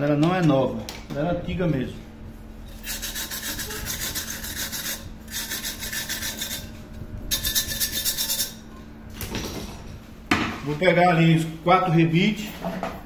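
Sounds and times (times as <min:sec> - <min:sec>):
abrasive scraping aluminium: 0:02.7 - 0:08.8.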